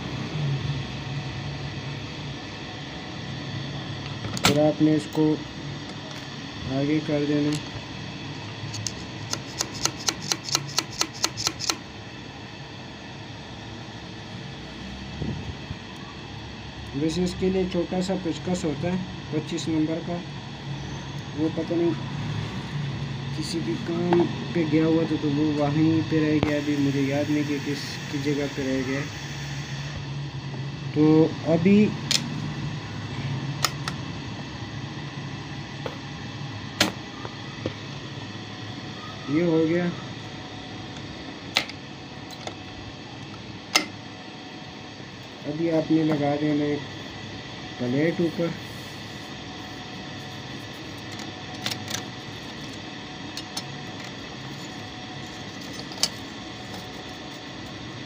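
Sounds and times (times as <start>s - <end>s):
steady low hum: 0.0s - 58.0s
sharp clicks of metal tools: 8.7s - 11.8s.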